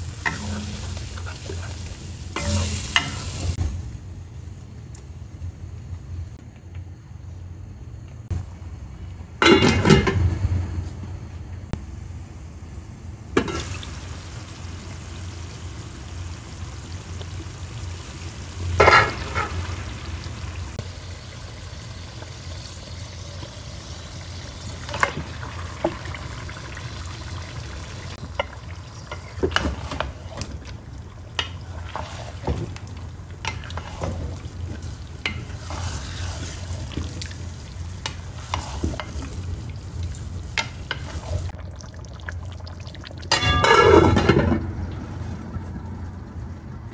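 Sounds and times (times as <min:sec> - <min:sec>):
chicken sizzling in pot: 0:00.0 - 0:03.9, 0:13.4 - 0:44.4.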